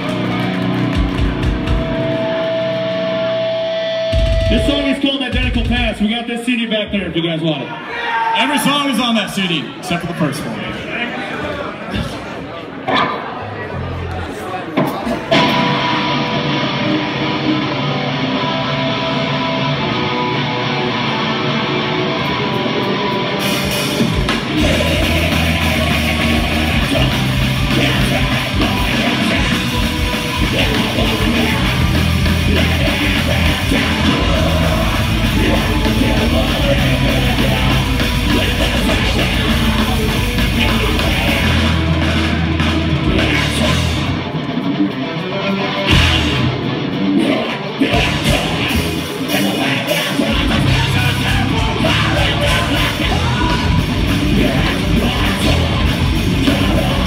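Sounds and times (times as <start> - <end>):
electric guitars: 0.0 - 5.9, 12.9 - 57.0
live metal band playing: 0.0 - 6.4, 15.1 - 57.0
person singing: 24.5 - 44.2, 45.9 - 57.0.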